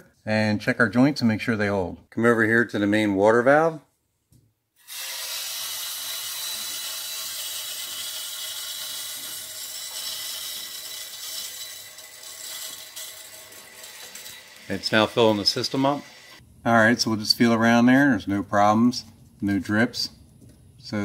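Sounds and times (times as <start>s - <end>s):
water hissing through pipes: 4.8s - 16.4s.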